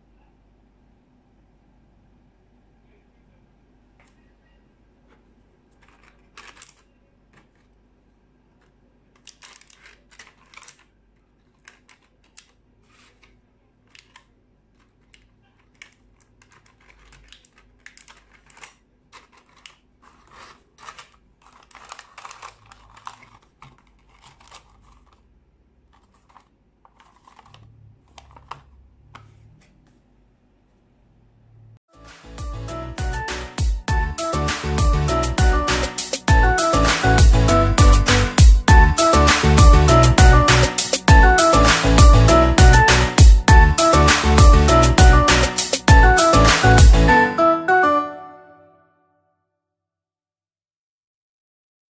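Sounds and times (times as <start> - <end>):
plastic blister tray crinkling: 5.1 - 7.9, 8.5 - 29.4.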